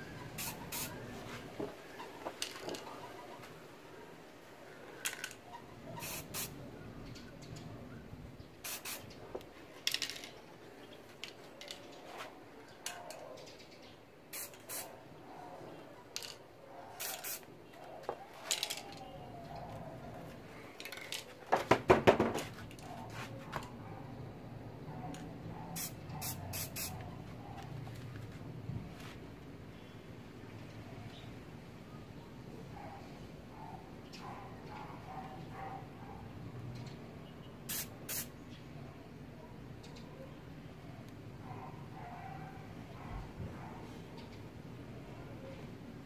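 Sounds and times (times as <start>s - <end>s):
spray paint can hissing: 0.4s - 0.9s, 6.0s - 6.6s, 8.6s - 9.1s, 14.3s - 14.9s, 17.0s - 17.4s, 25.8s - 27.0s, 37.7s - 38.3s.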